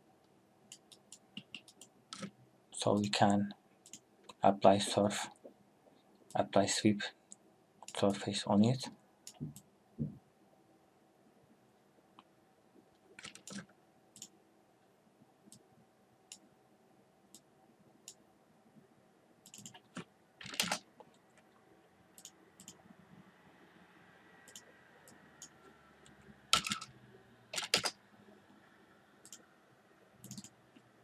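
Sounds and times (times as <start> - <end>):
faint steady hum: 0.0 - 31.0
mouse and keyboard clicks: 0.7 - 2.3, 13.2 - 14.3, 19.4 - 20.8, 26.5 - 26.9, 27.6 - 28.0, 30.2 - 30.6.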